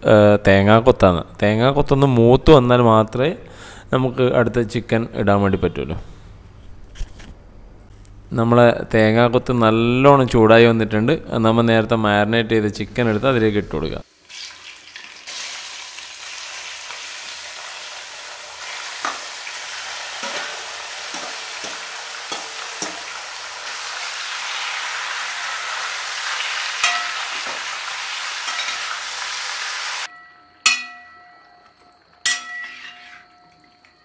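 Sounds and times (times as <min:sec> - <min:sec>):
chicken sizzling in oil: 0:14.1 - 0:30.1
spatula knocking on metal pan: 0:20.2 - 0:23.1, 0:26.8 - 0:27.6, 0:30.6 - 0:31.4.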